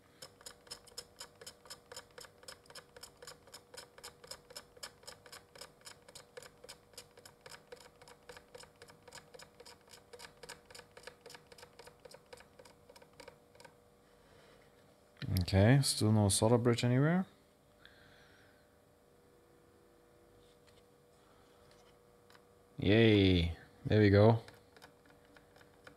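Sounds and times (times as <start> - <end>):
low steady hum: 0.0 - 25.9
faint regular ticking: 0.1 - 13.8, 24.3 - 25.9.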